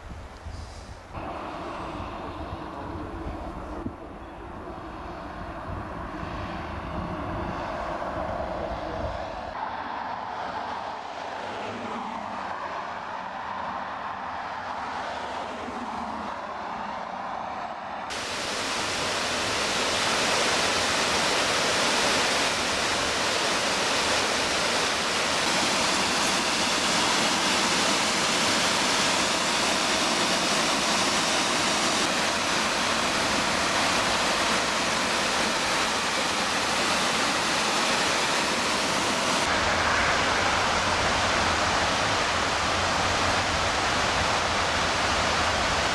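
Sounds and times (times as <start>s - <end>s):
waterfall splashing over rock: 18.1s - 45.9s.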